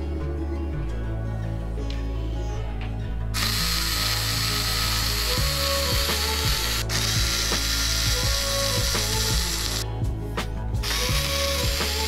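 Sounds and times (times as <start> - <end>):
cordless screwdriver running: 3.4 - 9.8, 10.8 - 12.0.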